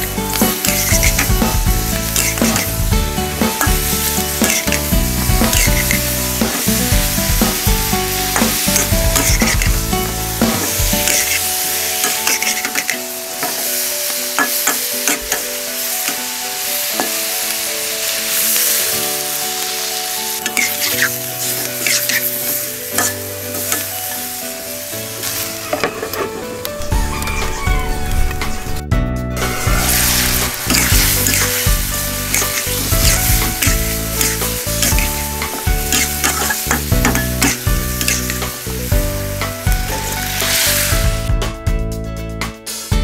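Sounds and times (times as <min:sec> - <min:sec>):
food sizzling in hot oil: 0:00.0 - 0:25.9, 0:29.4 - 0:41.4
metal spatula scraping a wok: 0:00.3 - 0:02.8, 0:03.5 - 0:06.7, 0:08.3 - 0:13.6, 0:20.4 - 0:24.2, 0:29.4 - 0:38.5.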